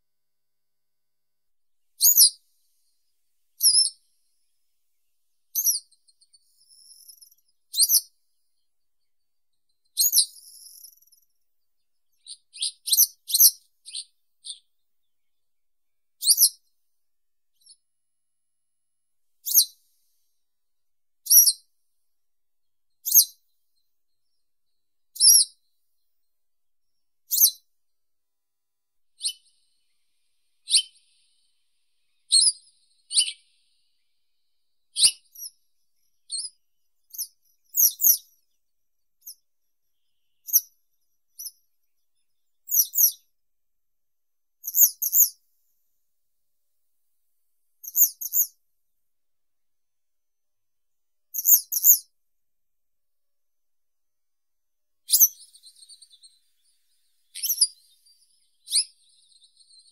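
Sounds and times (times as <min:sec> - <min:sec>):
bird chirping: 0:02.0 - 0:02.9, 0:03.6 - 0:04.4, 0:05.5 - 0:15.5, 0:16.2 - 0:16.7, 0:17.5 - 0:17.8, 0:19.4 - 0:20.3, 0:21.2 - 0:21.7, 0:23.0 - 0:25.8, 0:26.8 - 0:27.8, 0:29.1 - 0:43.3, 0:44.6 - 0:45.4, 0:47.8 - 0:48.6, 0:51.3 - 0:52.1, 0:55.0 - 0:59.9.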